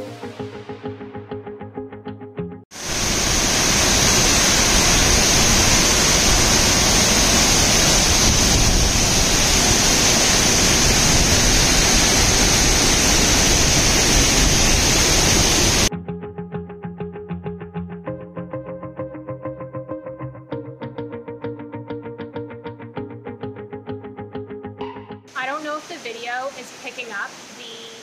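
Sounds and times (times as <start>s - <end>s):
waterfall rushing: 2.8s - 15.9s, 25.4s - 28.0s.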